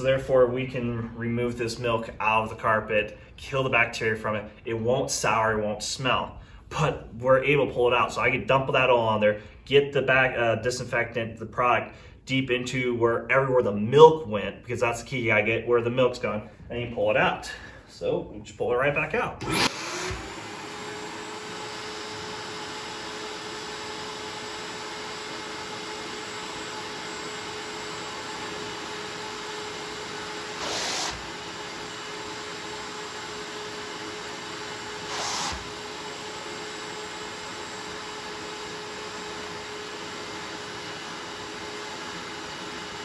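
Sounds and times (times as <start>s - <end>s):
wet vacuum suction: 19.4s - 27.6s, 28.7s - 38.7s.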